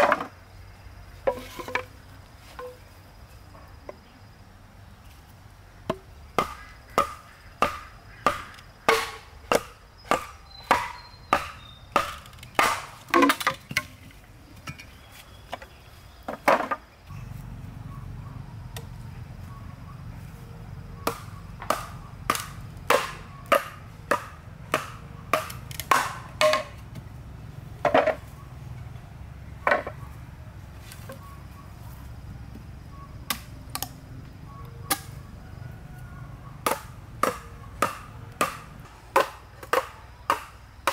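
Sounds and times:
machete chopping bamboo: 5.9s - 13.9s, 21.0s - 27.0s, 33.2s - 34.0s, 34.9s - 35.2s, 36.6s - 40.9s.

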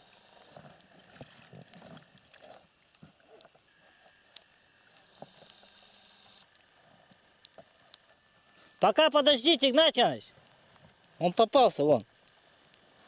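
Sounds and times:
small clicks from rubber boat: 0.4s - 8.3s, 11.8s - 13.0s.

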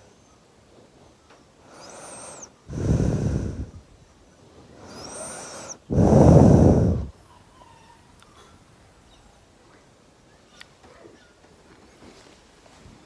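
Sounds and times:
child breathing heavily through nose: 1.6s - 3.9s, 4.8s - 7.2s.

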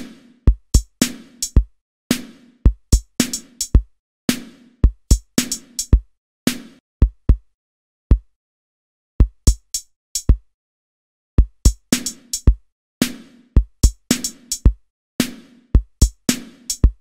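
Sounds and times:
snare hits: 0.0s - 0.3s, 2.1s - 2.5s, 4.3s - 4.7s, 6.5s - 6.8s, 15.2s - 15.6s
drum machine kick-drum beat: 0.0s - 7.5s, 8.1s - 8.3s, 9.2s - 10.5s, 11.4s - 17.0s.

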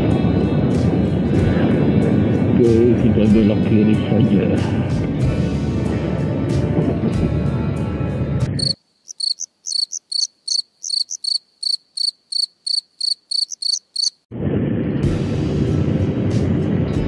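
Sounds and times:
cricket chirping: 8.5s - 14.2s
road noise: 8.5s - 14.2s.

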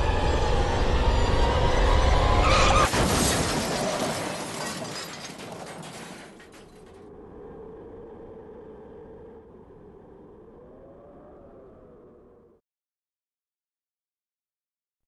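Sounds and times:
car crash impact: 2.4s - 7.0s
glass shattering: 2.8s - 7.0s.

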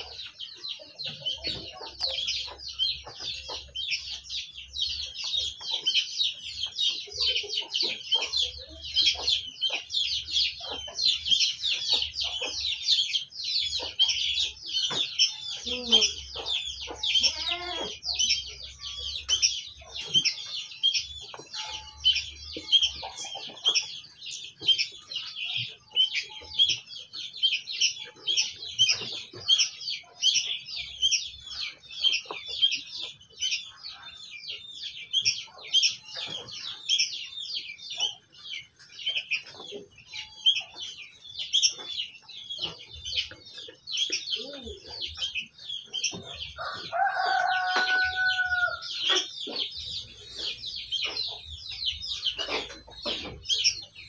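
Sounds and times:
birds chirping in chorus: 0.0s - 54.0s
rooster crowing: 46.6s - 49.0s.

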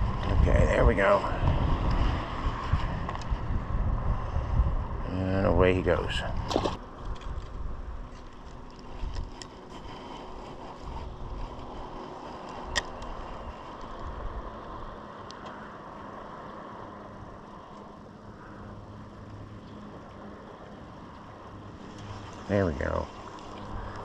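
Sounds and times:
boat background noise: 0.0s - 24.0s.

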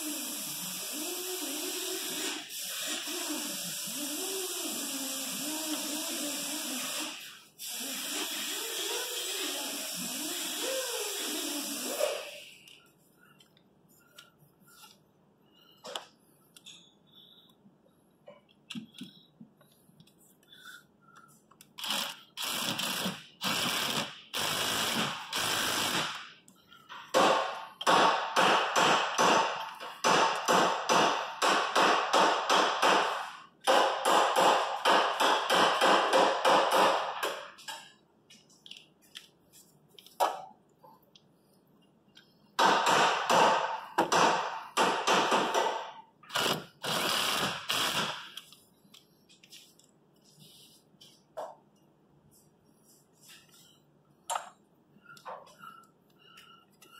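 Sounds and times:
cordless power tool bursts: 21.8s - 26.2s, 46.3s - 48.3s.

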